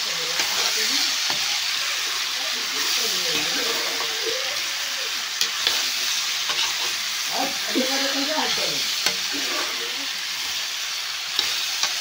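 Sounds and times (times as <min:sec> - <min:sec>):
potatoes sizzling in hot oil: 0:00.0 - 0:12.0.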